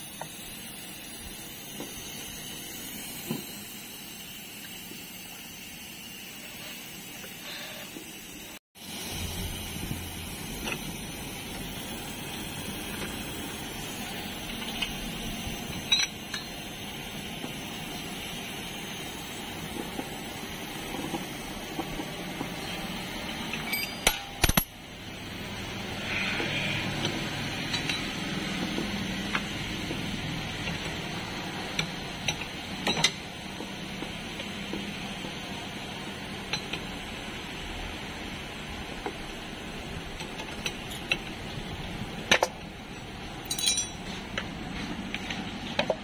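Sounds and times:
metal tools clinking on metal: 15.8 - 16.6, 23.5 - 24.8, 43.4 - 44.1.

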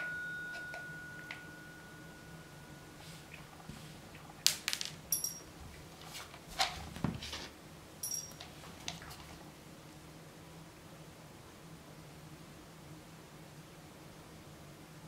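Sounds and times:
kibble clinking into ceramic bowl: 4.7 - 5.6, 8.0 - 8.6.

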